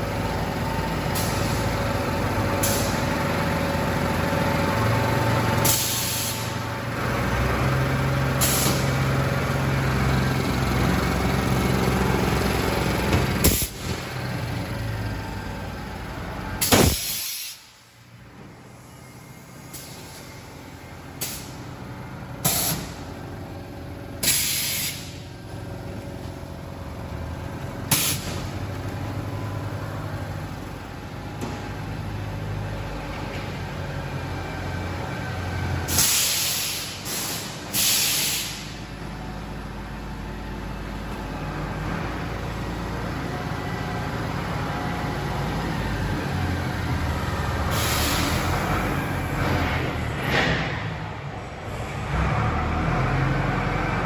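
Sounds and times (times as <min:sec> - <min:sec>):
machine conveyor and motors running: 0:00.0 - 0:54.0
compressed air hisses: 0:16.6 - 0:17.8, 0:24.2 - 0:25.2, 0:35.9 - 0:38.7.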